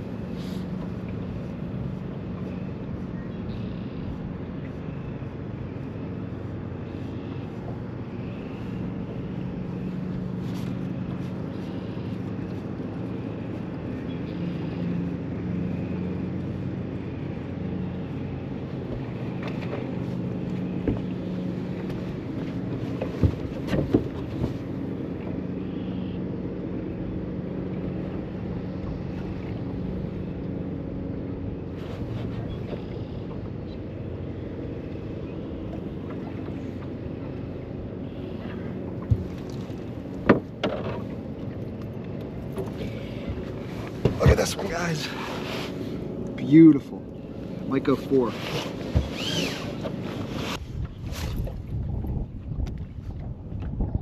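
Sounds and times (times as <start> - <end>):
boat motor humming: 0.0 - 54.0.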